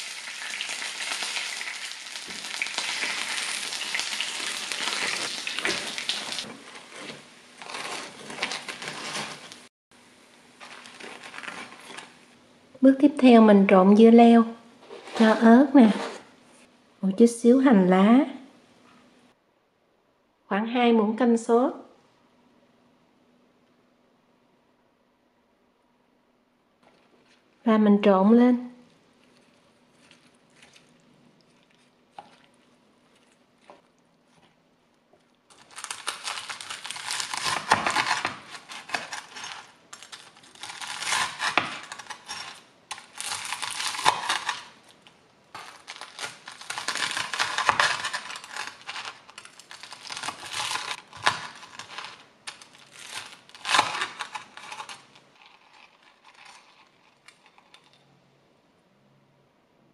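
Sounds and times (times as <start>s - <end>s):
knife crunching through crisp crust: 0.7s - 9.7s, 10.6s - 12.3s, 29.1s - 58.0s.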